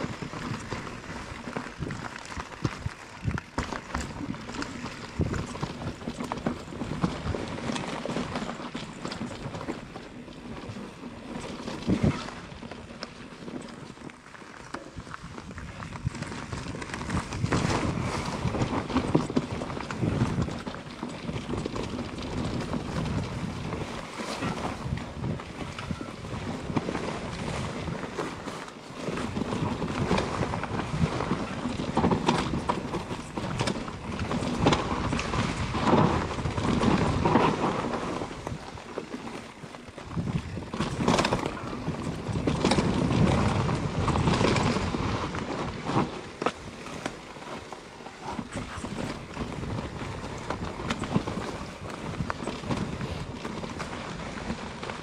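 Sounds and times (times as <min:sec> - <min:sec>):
bike knocks and rattles: 0:00.0 - 0:55.0
bike tyres rolling on dirt: 0:00.0 - 0:55.0.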